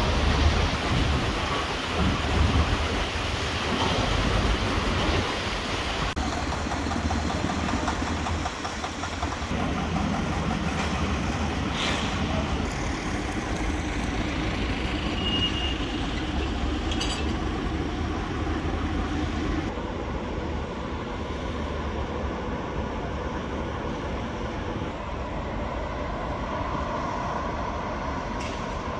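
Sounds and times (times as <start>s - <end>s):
machinery rumble: 6.0s - 28.9s.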